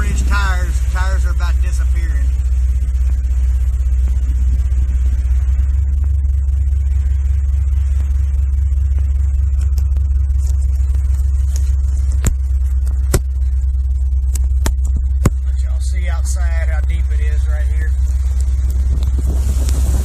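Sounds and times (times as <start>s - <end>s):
truck engine rumble: 0.0s - 20.0s.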